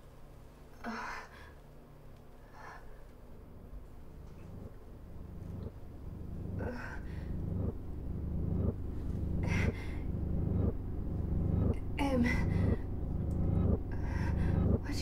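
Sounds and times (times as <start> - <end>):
low throbbing pulse: 3.3 - 15.0
woman gasping and moaning: 6.3 - 11.0.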